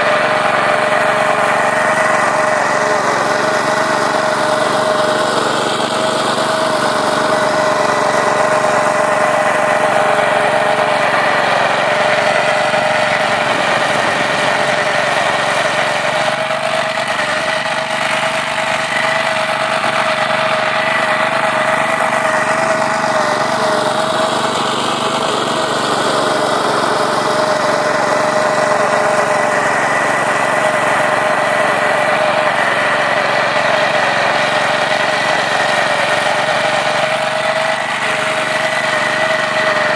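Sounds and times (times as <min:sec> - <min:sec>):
small petrol engine running: 0:00.0 - 0:39.9
steady whine: 0:00.0 - 0:39.9.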